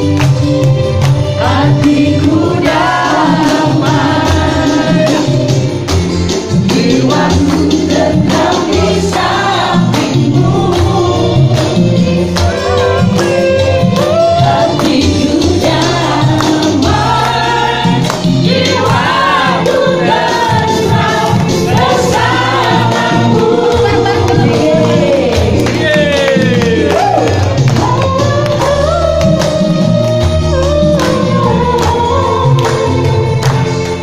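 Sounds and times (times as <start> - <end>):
group singing over music: 0.0 - 34.0
hand-clapping in steady beat: 0.0 - 34.0.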